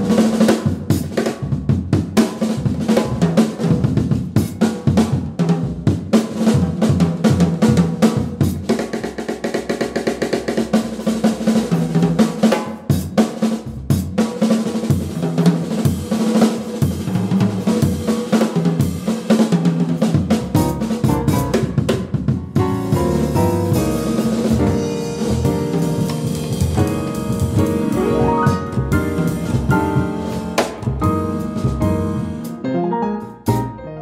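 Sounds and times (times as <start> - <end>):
rapid snare drum strokes: 0.0 - 32.6
jazz trio playing: 0.0 - 34.0.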